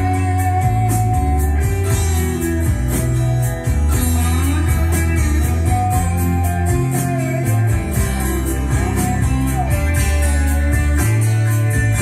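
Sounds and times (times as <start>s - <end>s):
electric guitar lead bending notes: 0.0s - 12.0s
southern rock ballad on hi-fi: 0.0s - 12.0s.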